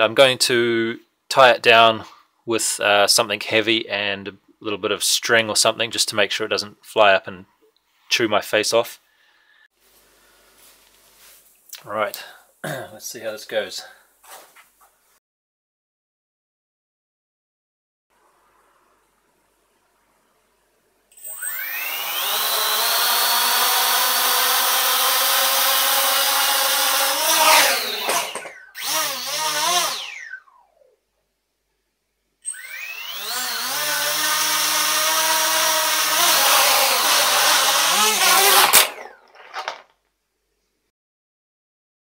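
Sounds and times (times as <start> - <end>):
quadcopter motors whining: 21.2 - 30.7, 32.4 - 39.2.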